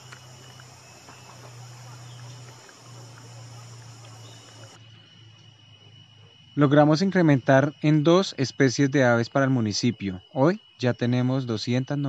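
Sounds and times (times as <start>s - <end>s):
faint ticks: 0.0s - 4.8s
low steady hum: 0.0s - 4.9s
insects trilling: 0.0s - 12.0s.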